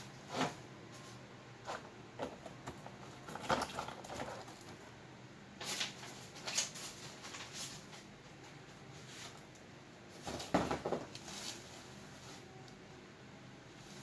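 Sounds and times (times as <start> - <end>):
cardboard rustling and scraping: 10.1 - 12.6.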